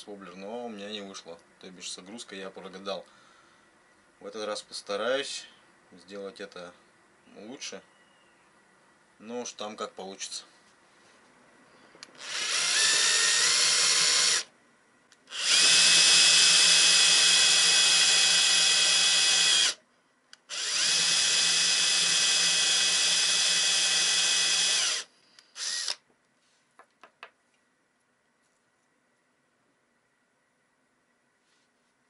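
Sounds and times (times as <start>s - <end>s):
cordless drill boring into wood: 12.2s - 14.5s, 15.3s - 19.8s, 20.5s - 26.0s.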